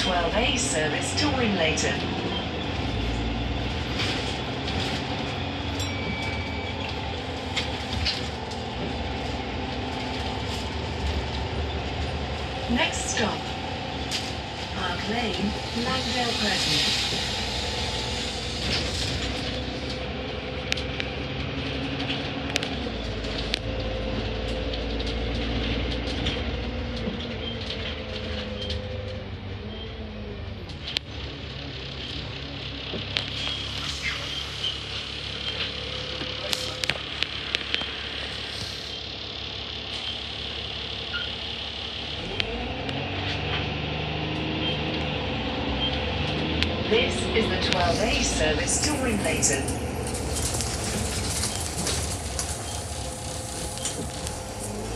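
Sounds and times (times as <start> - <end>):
bus engine drone: 0.0 - 54.9
road rumble: 0.0 - 54.9
whining tone: 44.3 - 54.9.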